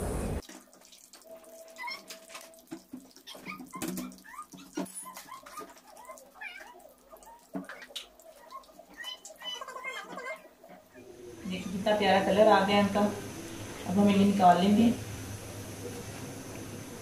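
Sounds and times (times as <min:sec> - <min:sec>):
high chirping animal calls: 0:03.3 - 0:11.9.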